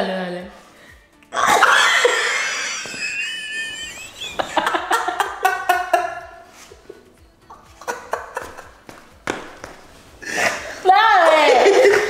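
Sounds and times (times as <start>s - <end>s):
man and woman laughing: 1.4s - 6.4s, 7.6s - 8.9s, 11.4s - 12.0s.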